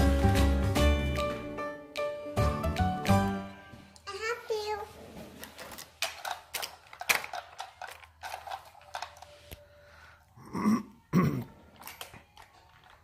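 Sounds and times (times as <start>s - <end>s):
toy train clicking on plastic track: 5.5s - 9.6s, 11.7s - 13.0s.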